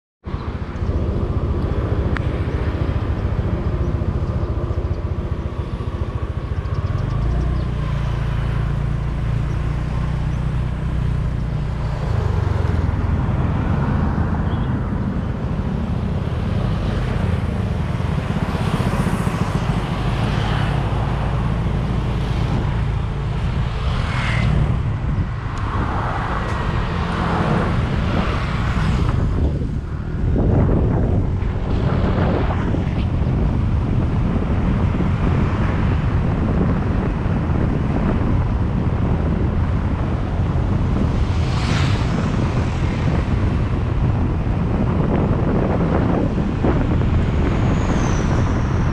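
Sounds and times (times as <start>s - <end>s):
road noise: 0.2s - 48.9s.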